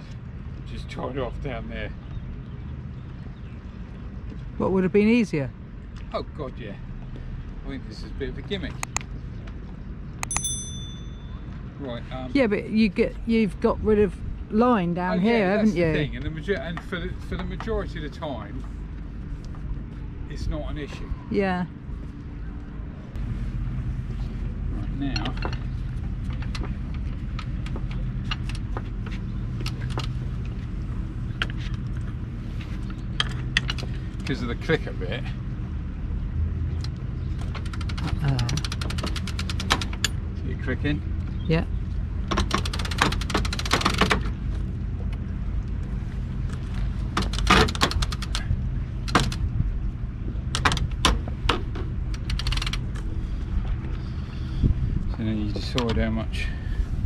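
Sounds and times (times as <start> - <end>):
low rumble: 0.0 - 42.3
low mechanical hum: 13.1 - 57.0.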